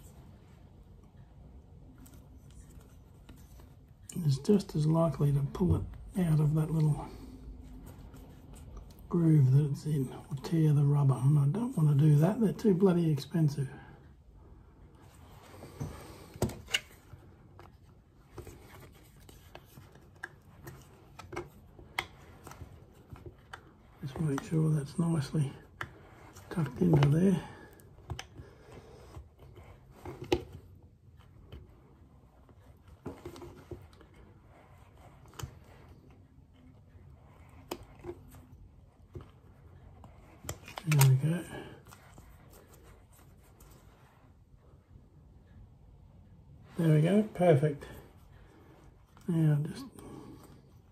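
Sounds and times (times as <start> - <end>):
faint clicks and taps: 15.0 - 24.5, 25.2 - 46.8.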